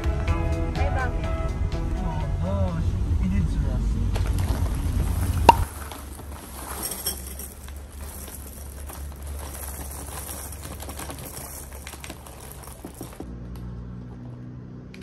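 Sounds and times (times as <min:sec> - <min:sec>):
cereal pouring into a bowl: 0:04.4 - 0:13.2.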